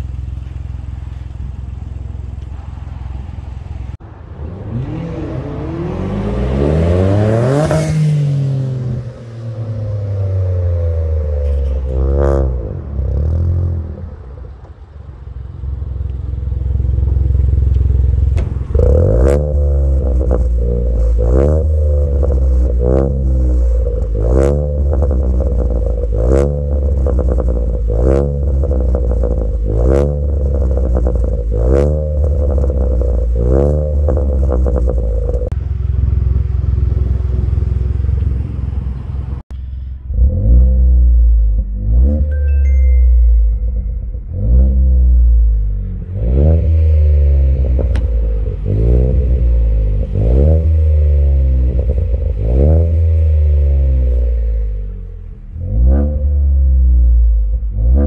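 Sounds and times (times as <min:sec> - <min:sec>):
exhaust crack: 0:00.0 - 0:42.4, 0:43.2 - 0:58.0
car engine revving: 0:00.0 - 0:42.5, 0:43.3 - 0:58.0.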